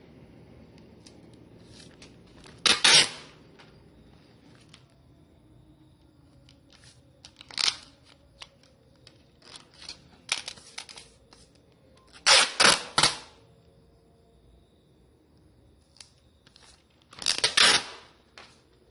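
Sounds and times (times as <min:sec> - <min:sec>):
paper rustling: 0:01.0 - 0:03.1, 0:09.4 - 0:11.6
packing tape ripping: 0:01.7 - 0:03.4, 0:07.2 - 0:08.7, 0:12.2 - 0:13.4, 0:17.1 - 0:18.2.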